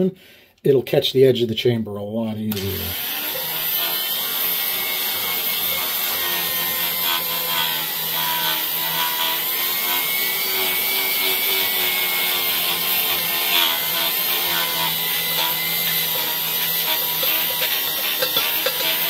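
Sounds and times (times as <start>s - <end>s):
die grinder polishing metal: 2.5s - 19.0s.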